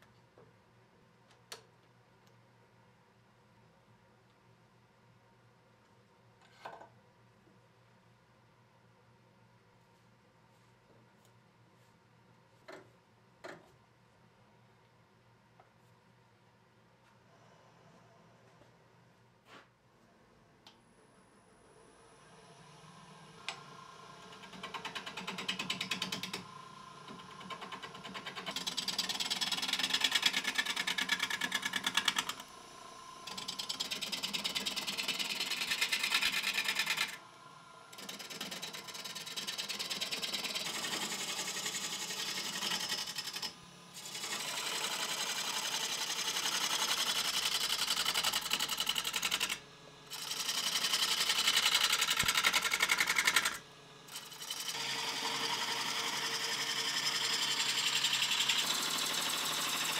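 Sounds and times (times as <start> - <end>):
lathe tool rasping on wood: 33.3 - 37.2, 38.0 - 49.5, 50.1 - 53.5, 54.1 - 59.9.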